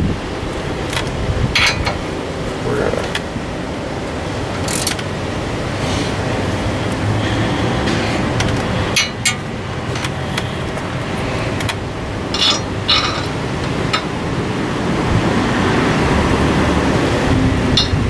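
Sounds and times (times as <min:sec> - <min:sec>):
metal tools clinking: 0:01.6 - 0:02.0, 0:08.9 - 0:10.8, 0:11.6 - 0:14.2, 0:17.8 - 0:18.0.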